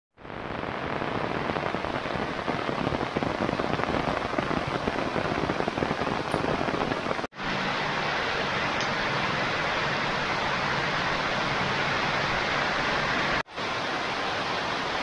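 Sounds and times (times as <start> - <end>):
heavy rain pouring: 0.1 - 15.0.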